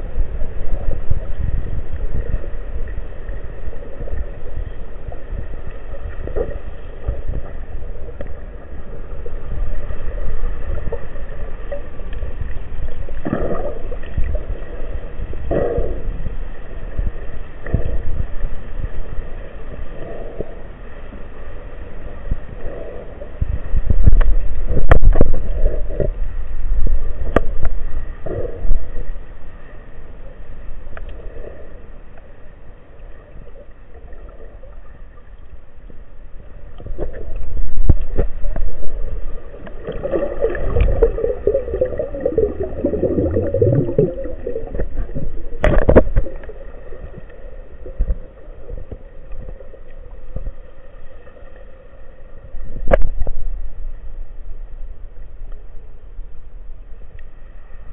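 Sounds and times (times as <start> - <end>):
underwater rumbling water: 0.0 - 57.9
bubbling gurgle: 13.1 - 14.8, 36.8 - 49.4.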